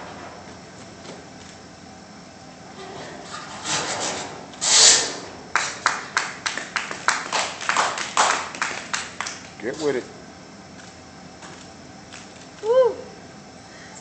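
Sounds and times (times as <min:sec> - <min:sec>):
audience clapping in rhythm: 0:05.5 - 0:09.6.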